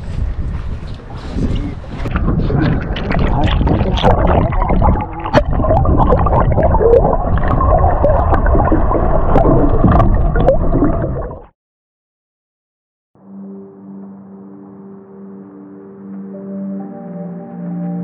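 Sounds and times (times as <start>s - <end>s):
underwater water rushing: 1.9s - 11.5s.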